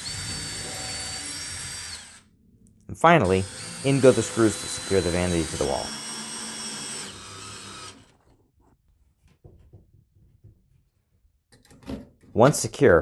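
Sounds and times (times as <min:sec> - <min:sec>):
cordless drill driving screw: 0:00.0 - 0:02.2, 0:03.2 - 0:08.1.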